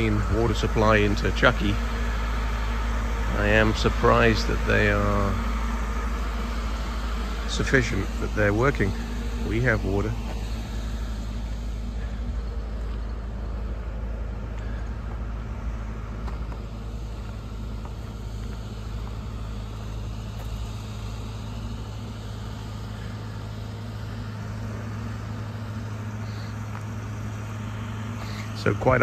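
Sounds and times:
engine idling: 0.0s - 29.0s.

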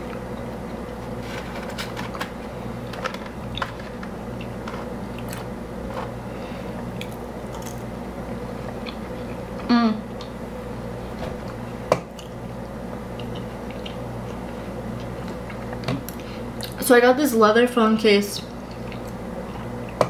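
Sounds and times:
person chewing crisp food: 3.4s - 10.4s, 11.4s - 16.8s, 18.6s - 20.0s.

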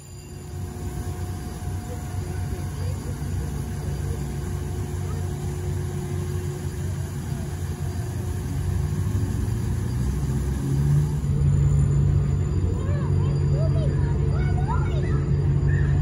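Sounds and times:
ship engine rumble: 0.0s - 16.0s.

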